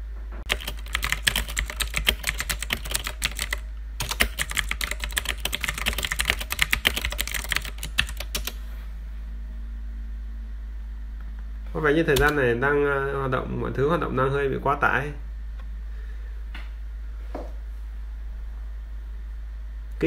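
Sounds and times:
steady low hum: 0.0 - 20.0
computer keyboard typing: 0.4 - 8.6, 12.1 - 12.4.

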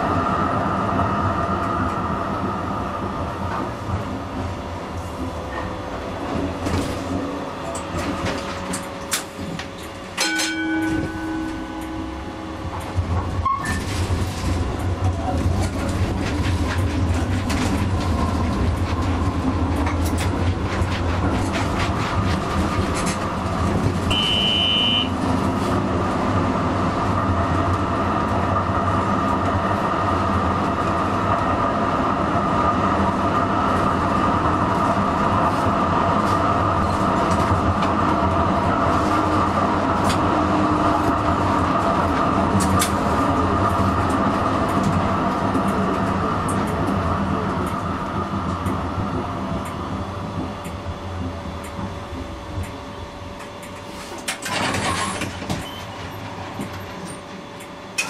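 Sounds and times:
tram running on track: 0.0 - 58.0
brief high tone: 24.1 - 25.1.

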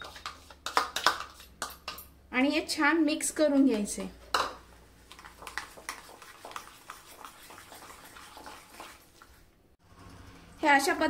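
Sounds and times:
spoon stirring batter in bowl: 0.0 - 2.2, 3.5 - 9.6.

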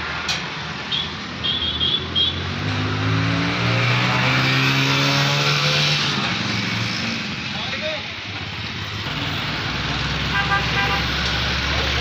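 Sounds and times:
tractor diesel engine revving: 8.4 - 12.0.

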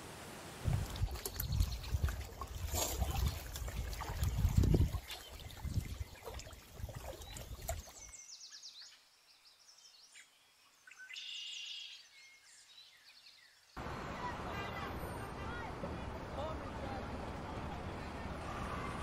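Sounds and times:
wind gusts: 0.0 - 7.9, 13.8 - 19.0
bird chirping: 4.4 - 14.9
waves lapping on rocky shore: 13.8 - 19.0.

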